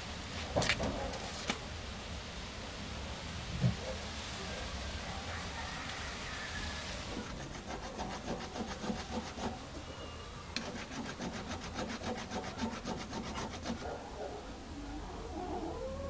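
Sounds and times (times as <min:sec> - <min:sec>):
hand file rasping on metal: 0:07.1 - 0:09.6, 0:10.6 - 0:13.9.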